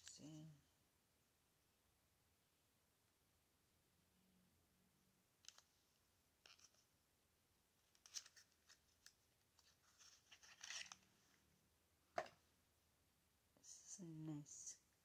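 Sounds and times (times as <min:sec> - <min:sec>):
wrapping rustling: 0:08.0 - 0:11.1.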